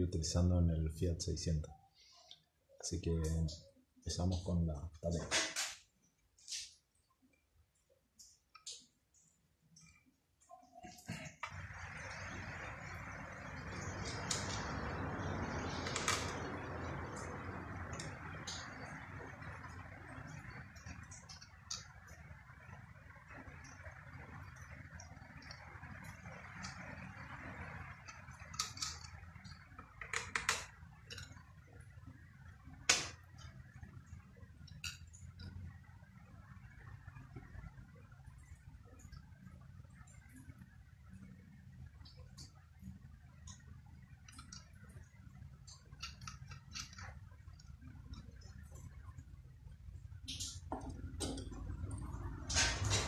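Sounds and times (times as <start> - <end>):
metallic clicks of cable connections: 8.2 - 10.0, 24.5 - 31.4, 43.4 - 49.0, 50.2 - 53.0
steady rushing noise: 11.5 - 34.5.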